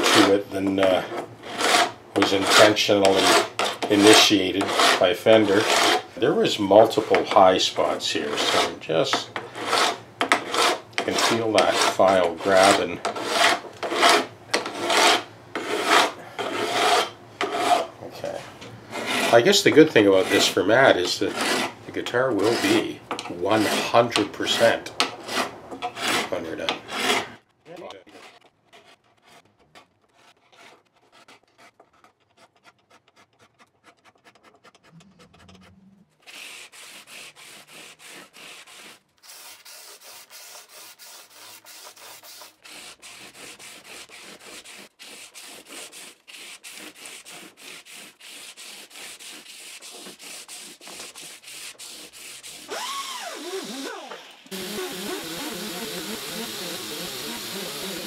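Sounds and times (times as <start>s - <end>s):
file scraping metal frets: 0.0s - 39.0s
motorised polishing wheel spinning: 52.7s - 58.0s.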